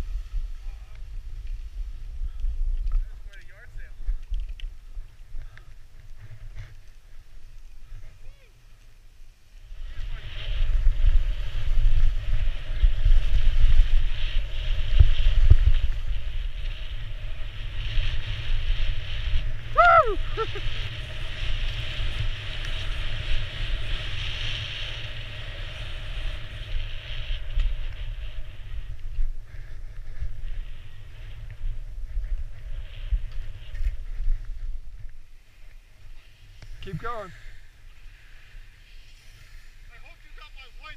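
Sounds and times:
skis hissing through snow: 0:00.0 - 0:02.2, 0:05.9 - 0:40.9
wind buffeting camera: 0:00.0 - 0:09.0, 0:09.6 - 0:40.9.

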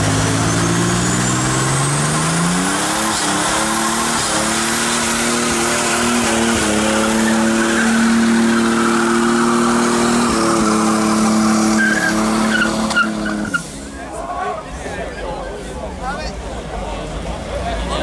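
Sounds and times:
car engine revving high: 0:00.0 - 0:13.8
tyres squealing in a burnout: 0:00.5 - 0:14.5.

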